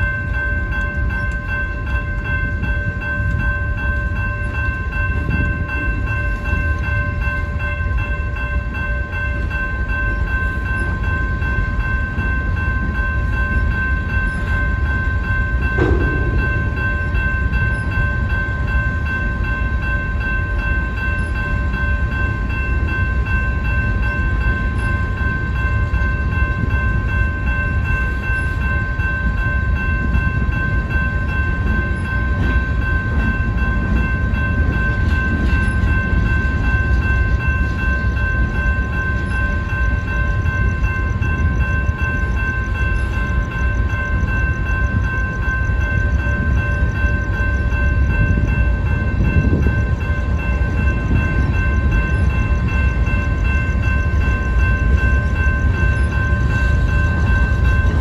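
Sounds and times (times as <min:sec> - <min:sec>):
railroad crossing bell ringing: 0:00.0 - 0:58.0
train wheels rumbling on rails: 0:00.0 - 0:58.0
metal clank: 0:15.8 - 0:17.3.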